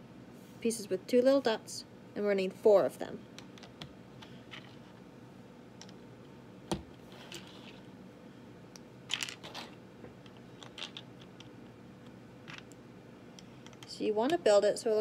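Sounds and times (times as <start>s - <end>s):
plastic bricks clicking and clattering: 9.1s - 9.7s, 10.6s - 11.5s.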